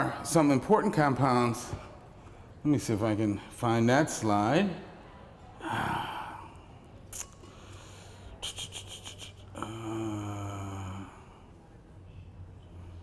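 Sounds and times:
man humming low: 0:08.4 - 0:11.4.

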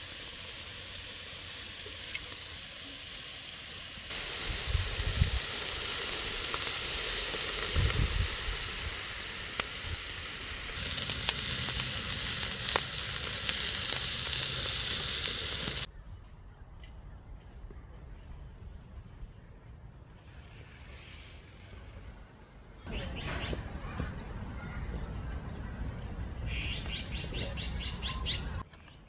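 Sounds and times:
meat sizzling on a grill: 0:00.0 - 0:15.9.

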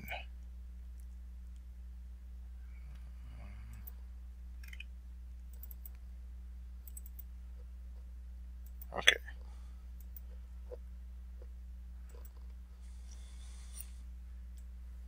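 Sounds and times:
low electrical hum: 0:00.0 - 0:15.0
computer mouse clicks: 0:03.7 - 0:04.0, 0:04.6 - 0:04.9, 0:05.5 - 0:06.0, 0:06.8 - 0:07.3, 0:12.1 - 0:14.7.

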